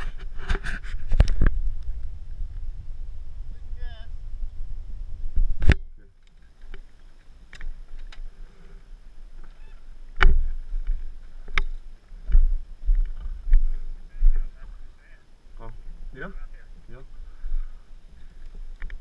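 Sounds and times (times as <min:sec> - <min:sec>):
low rumble: 0:01.0 - 0:06.1.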